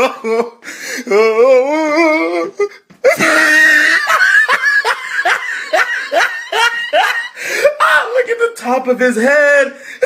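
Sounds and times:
boy laughing: 1.6 - 8.2.

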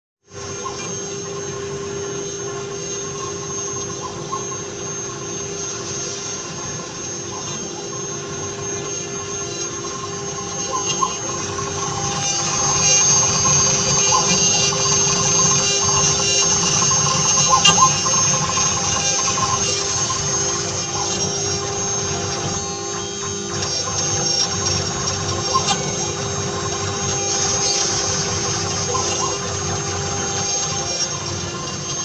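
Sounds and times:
router spindle motors: 0.3 - 32.0.

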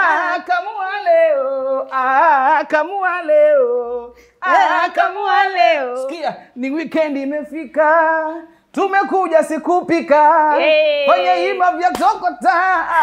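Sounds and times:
person singing unaccompanied: 0.0 - 13.0.

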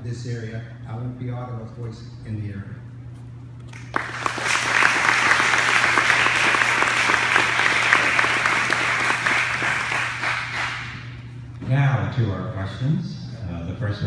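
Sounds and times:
audience applauding: 3.7 - 11.2.

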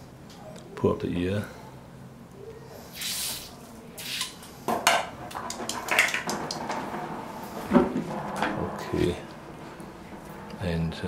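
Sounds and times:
squeeze bottle hissing squirts: 2.9 - 4.4.

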